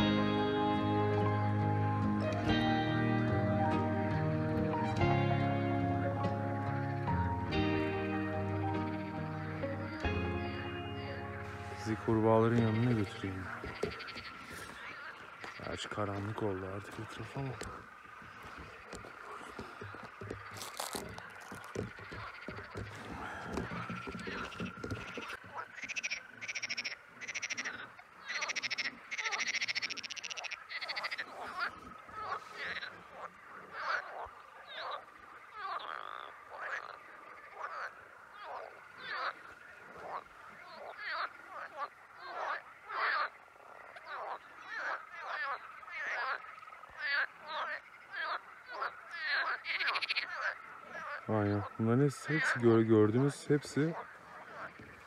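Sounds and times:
chorus of frogs croaking: 0.0 - 55.0.

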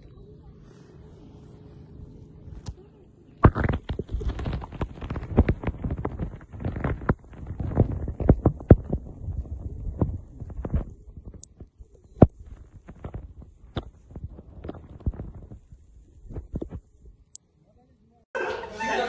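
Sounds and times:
low steady underwater hum: 0.0 - 18.1
muffled underwater knocks and thumps: 3.4 - 15.7.

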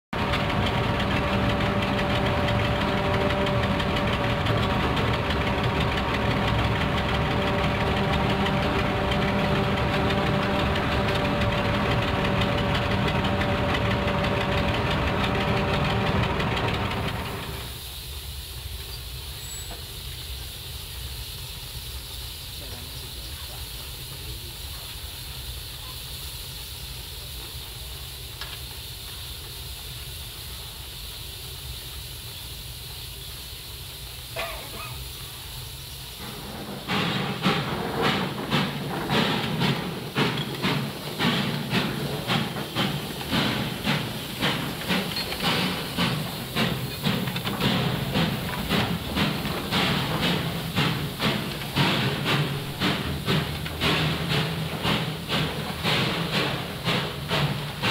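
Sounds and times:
steam locomotive chuffing: 0.1 - 57.9
steam locomotive hissing: 0.1 - 57.9.

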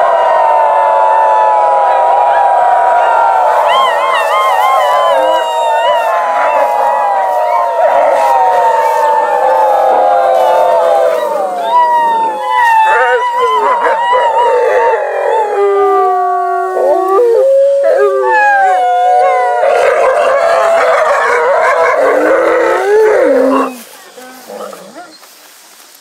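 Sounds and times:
wolves howling in chorus: 0.0 - 25.2.

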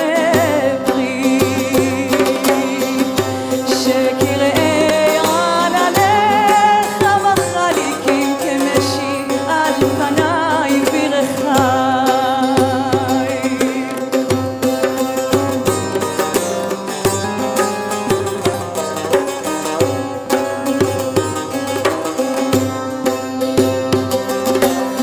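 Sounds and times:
woman singing: 0.0 - 14.6
hand percussion: 0.0 - 25.0
saz playing: 0.0 - 25.0.

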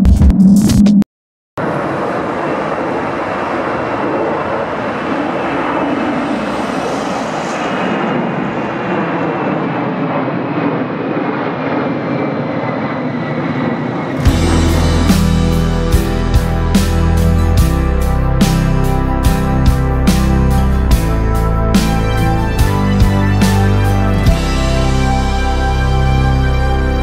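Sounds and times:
jet engines roaring: 1.6 - 27.0
music: 14.2 - 27.0.

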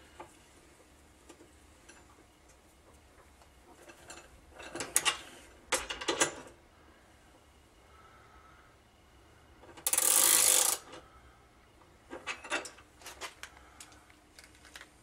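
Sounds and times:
socket ratchet clicking: 9.8 - 10.9.

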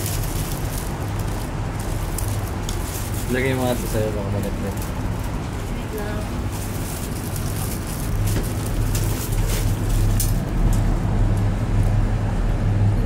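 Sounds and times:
rustling clicks: 0.0 - 5.6
cable car hum and rushing: 0.0 - 13.0.

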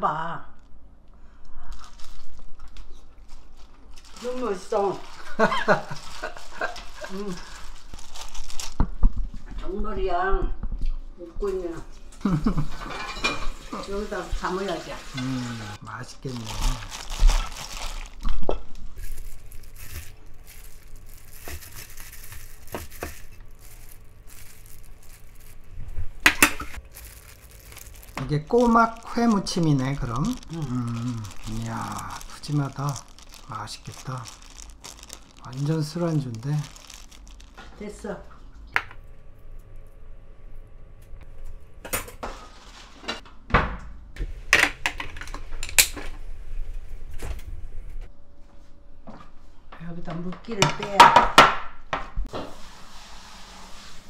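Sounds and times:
plastic glove crinkling: 1.6 - 9.4, 15.2 - 37.9
wet squish of salad: 26.7 - 37.6.

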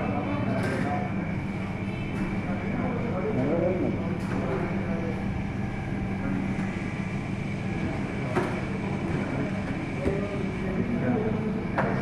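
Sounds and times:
kitchen equipment humming: 0.0 - 12.0.

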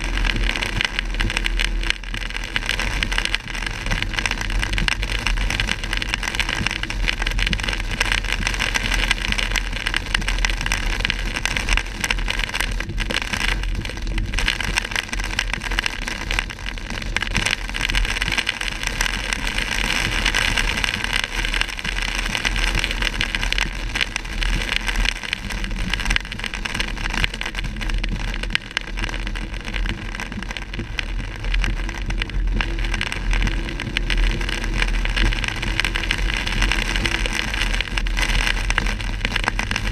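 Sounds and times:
low rumble: 0.0 - 39.9
rain on car: 0.0 - 39.9.

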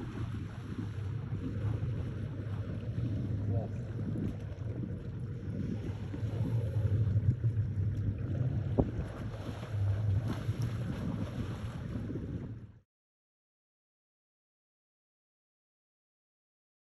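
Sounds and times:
wind buffeting microphone: 0.0 - 12.8.

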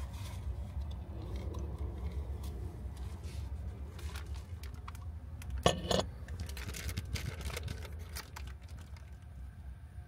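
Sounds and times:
packet crinkling: 3.9 - 5.6, 6.2 - 9.3.

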